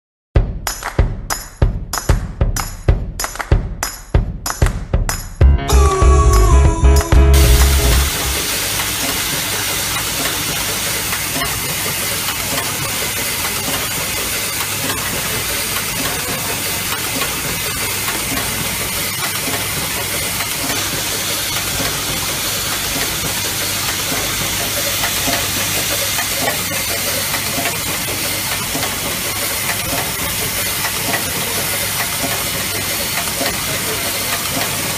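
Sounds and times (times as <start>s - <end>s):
low machine hum: 5.5s - 11.2s
machine hissing: 7.4s - 34.9s.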